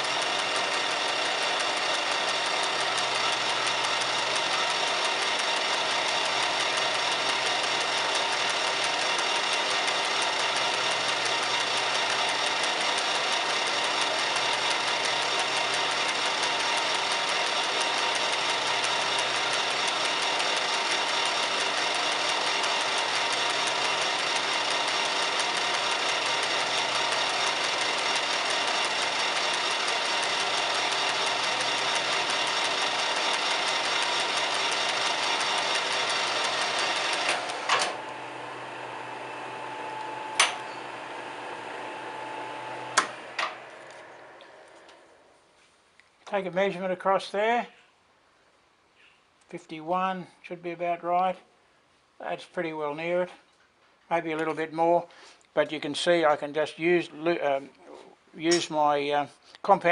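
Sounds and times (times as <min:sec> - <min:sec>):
lathe running: 0:00.0 - 0:45.3.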